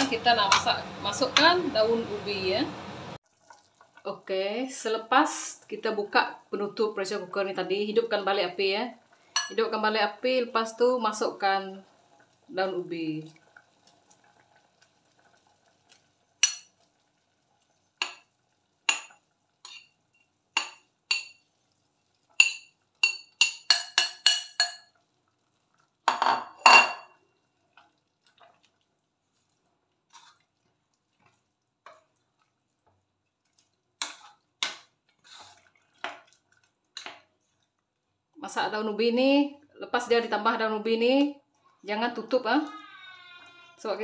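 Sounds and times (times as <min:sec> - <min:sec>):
spoon clattering on pot: 0:16.4 - 0:16.7, 0:18.0 - 0:18.3, 0:18.9 - 0:20.0, 0:20.6 - 0:21.4, 0:22.4 - 0:25.0, 0:26.1 - 0:27.2
metal spoon clinking on plate: 0:22.4 - 0:24.9.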